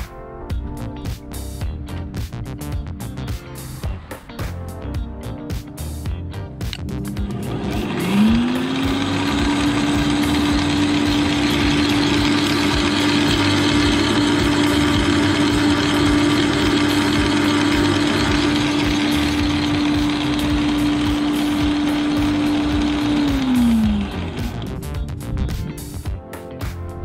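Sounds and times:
electric garden shredder motor running: 0:07.0 - 0:25.0.

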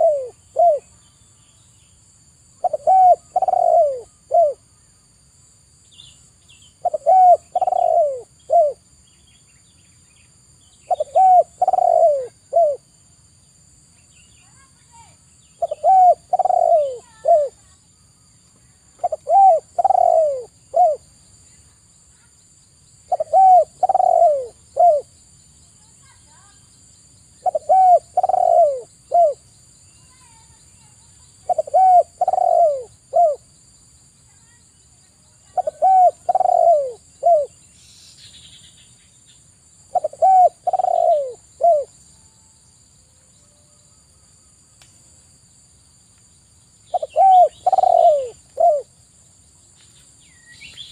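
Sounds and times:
dove cooing: 0:00.0 - 0:00.9, 0:02.6 - 0:04.6, 0:06.8 - 0:08.8, 0:10.9 - 0:12.9, 0:15.6 - 0:17.7, 0:19.0 - 0:21.0, 0:23.1 - 0:25.1, 0:27.4 - 0:29.4, 0:31.4 - 0:33.4, 0:35.5 - 0:37.6, 0:39.9 - 0:41.9, 0:46.9 - 0:48.9.

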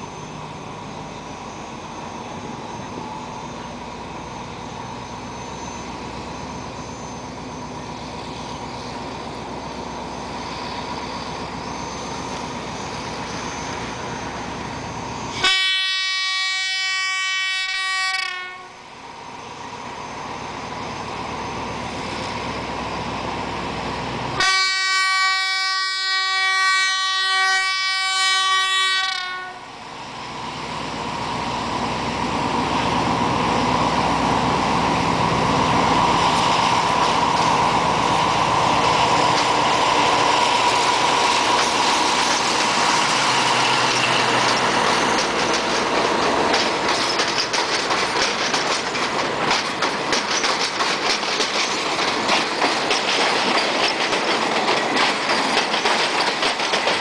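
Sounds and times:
locomotive engine rumbling: 0:00.0 - 0:57.0
train horn blast: 0:15.4 - 0:18.8, 0:24.4 - 0:29.7.

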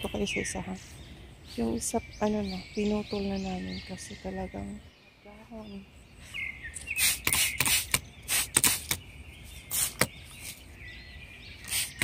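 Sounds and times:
spray bottle squirting: 0:06.9 - 0:09.0, 0:09.7 - 0:10.2, 0:11.6 - 0:12.0.

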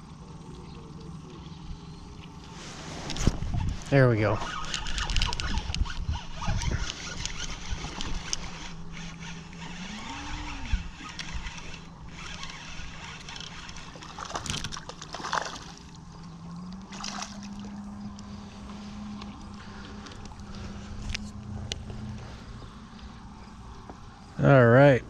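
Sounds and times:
outboard motor droning: 0:00.0 - 0:25.0
water splashes: 0:13.8 - 0:16.0, 0:16.8 - 0:17.9.

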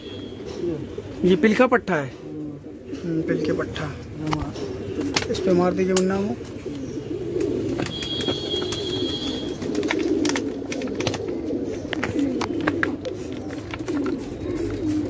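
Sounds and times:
pigeons cooing: 0:00.0 - 0:15.0
spray bottle squirts: 0:13.0 - 0:15.0.

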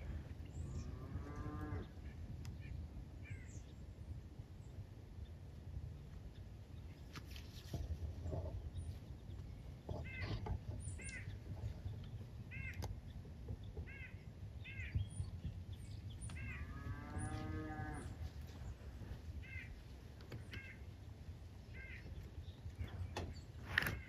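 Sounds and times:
steady low rumble: 0:00.0 - 0:24.0
bird calls: 0:06.4 - 0:24.0
drawn-out animal call: 0:09.9 - 0:11.7, 0:16.3 - 0:18.2.

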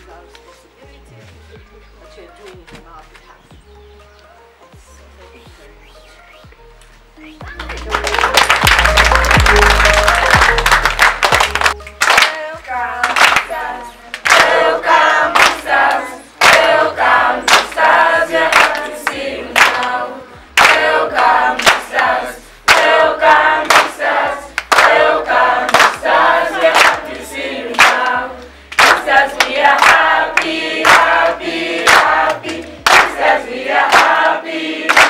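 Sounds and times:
hands clapping in time: 0:06.5 - 0:20.0, 0:20.6 - 0:35.0
children singing in chorus: 0:13.5 - 0:20.3.

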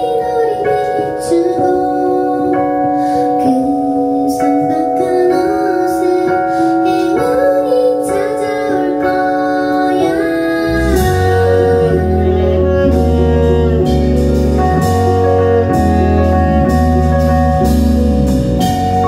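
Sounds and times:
woman singing: 0:00.0 - 0:17.7
electric keyboard: 0:00.0 - 0:19.0
drums: 0:08.1 - 0:19.0
deep bass: 0:10.2 - 0:19.0.

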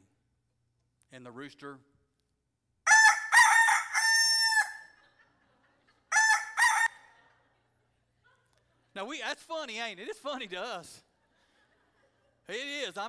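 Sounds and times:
rooster crowing: 0:02.9 - 0:05.0, 0:06.1 - 0:07.2.

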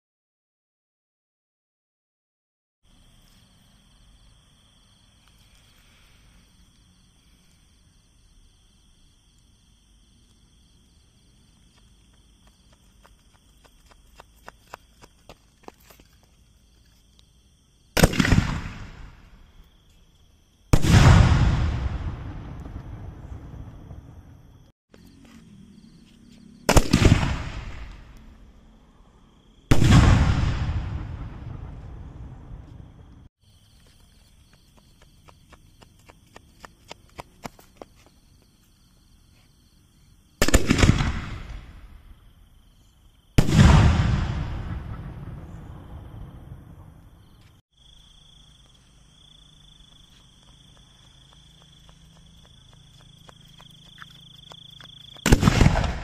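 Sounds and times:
insects chirping: 0:02.8 - 0:20.8, 0:21.8 - 0:29.8, 0:30.6 - 0:43.5, 0:44.3 - 0:56.0
firework shell launch boom: 0:20.8 - 0:23.2.

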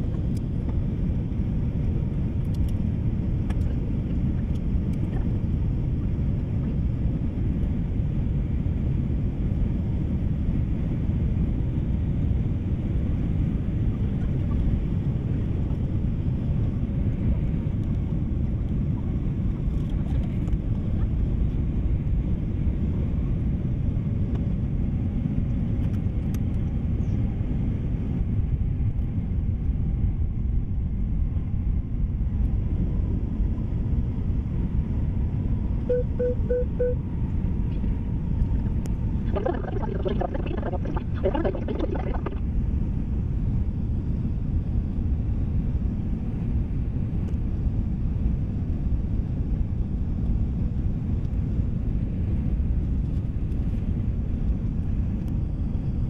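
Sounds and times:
airliner cabin engine rumble: 0:00.0 - 0:42.8.

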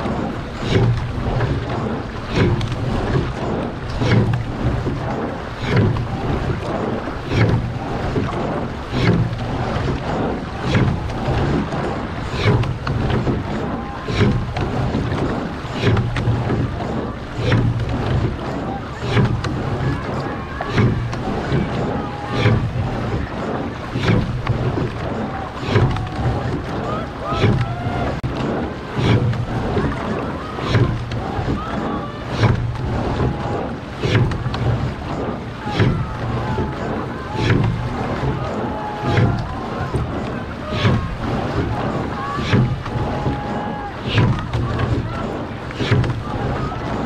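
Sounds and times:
oar stroke swish and thud: 0:00.0 - 0:47.0
water rushing along a hull: 0:00.0 - 0:47.0
wind on microphone: 0:00.0 - 0:47.0.

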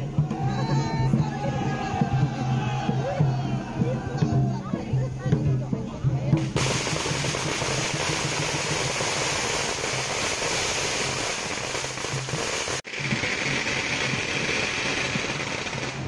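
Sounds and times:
firecrackers crackling: 0:06.4 - 0:16.0.

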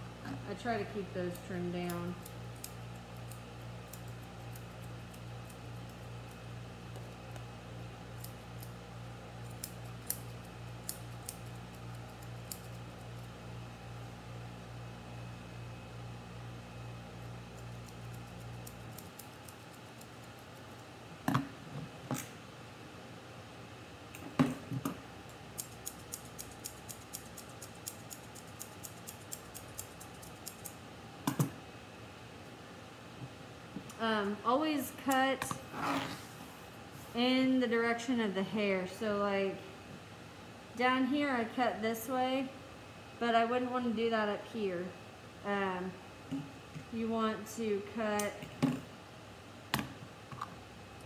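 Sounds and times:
scissors snipping hair: 0:01.3 - 0:07.4, 0:08.2 - 0:08.8, 0:09.4 - 0:13.2, 0:17.5 - 0:20.8, 0:25.3 - 0:30.8.

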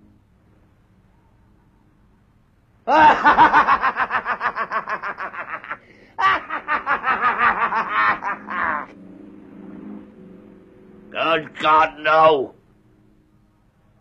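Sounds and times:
man laughing: 0:02.9 - 0:08.9.

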